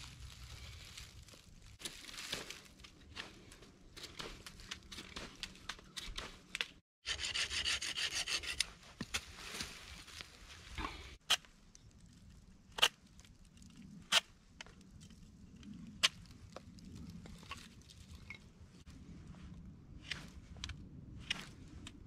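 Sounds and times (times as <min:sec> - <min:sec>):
rustling of dry leaves: 0:00.0 - 0:05.6, 0:08.8 - 0:11.2.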